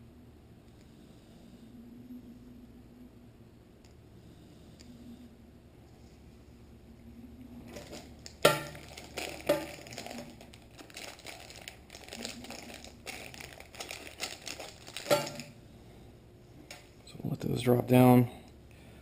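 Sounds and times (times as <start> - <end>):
plastic packets crinkling: 7.7 - 15.6.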